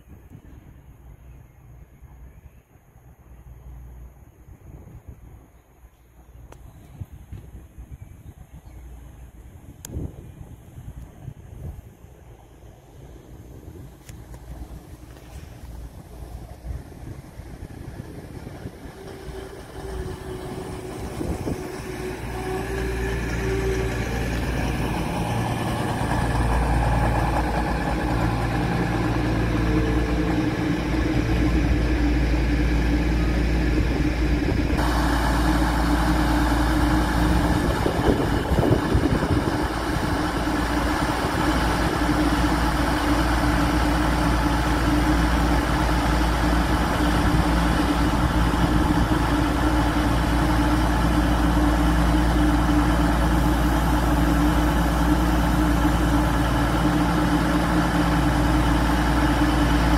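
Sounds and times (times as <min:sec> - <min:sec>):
diesel engines idling: 0:12.3 - 0:59.9.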